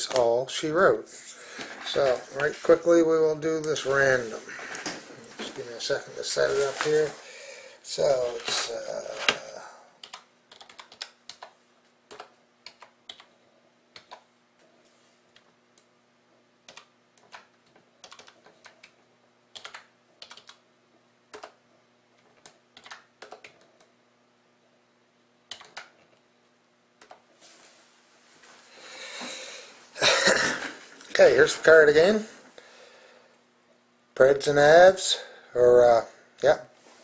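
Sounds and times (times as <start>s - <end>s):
low steady hum: 0.0s - 37.0s
typing on computer keyboard: 10.0s - 13.3s, 14.0s - 14.2s, 16.7s - 20.6s, 21.3s - 21.6s, 22.3s - 23.9s, 25.5s - 26.0s.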